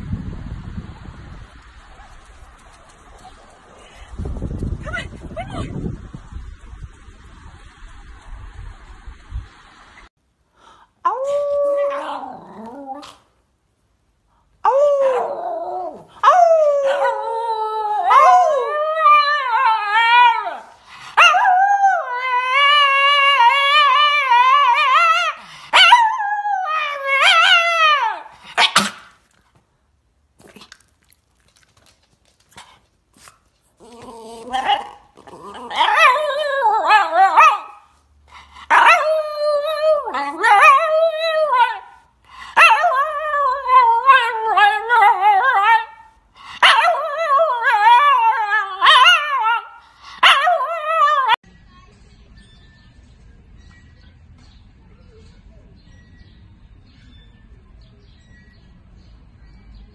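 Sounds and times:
dog howling: 0:11.1 - 0:13.1, 0:14.6 - 0:28.3, 0:33.8 - 0:37.8, 0:38.7 - 0:42.0.

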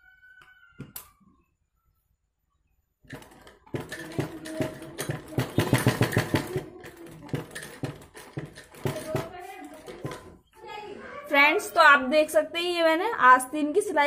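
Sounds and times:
sewing machine stitching: 0:03.0 - 0:10.4.

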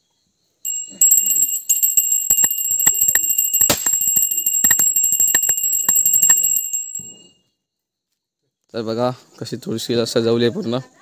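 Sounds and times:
hand bell ringing: 0:00.7 - 0:07.3.

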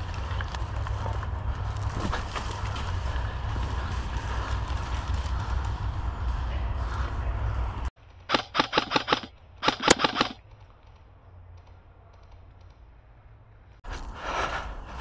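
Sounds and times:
airsoft rifle shots snapping: 0:08.3 - 0:10.4.

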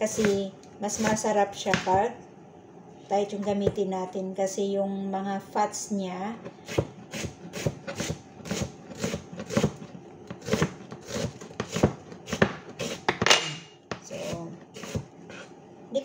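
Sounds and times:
knife chopping on cutting board: 0:00.1 - 0:00.4, 0:06.7 - 0:15.1.

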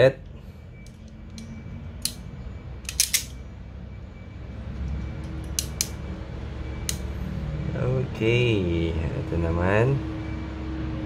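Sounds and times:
crimping tool metallic clicks: 0:02.8 - 0:03.4.

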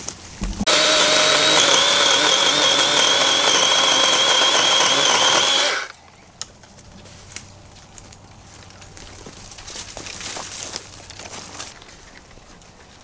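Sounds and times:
chainsaw whining cutting tree: 0:00.7 - 0:06.0.

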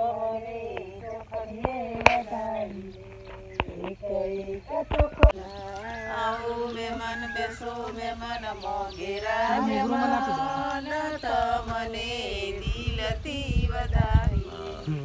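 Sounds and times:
women singing together: 0:00.0 - 0:15.0.

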